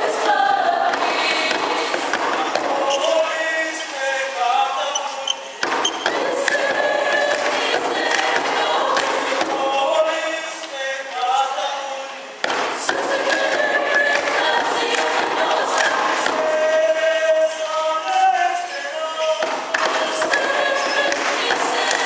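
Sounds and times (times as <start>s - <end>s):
mixed choir singing chords: 0.0s - 22.0s.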